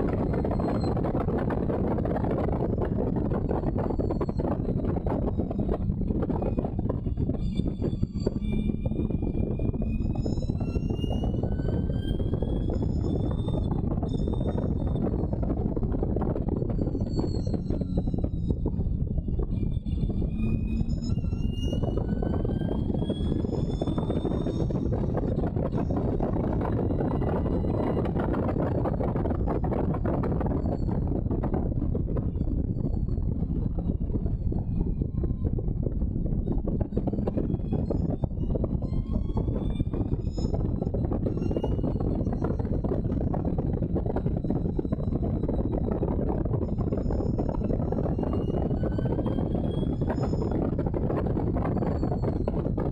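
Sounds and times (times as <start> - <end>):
wind buffeting microphone: 0.0 - 52.9.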